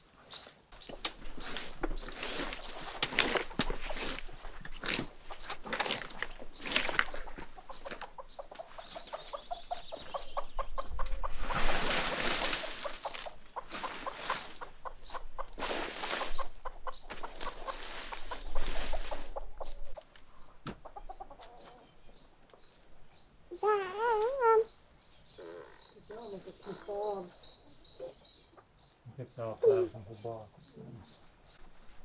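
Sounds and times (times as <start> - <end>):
rustling and scraping: 0.3 - 10.2, 10.8 - 21.8
chickens clucking: 0.8 - 24.7, 25.3 - 32.0.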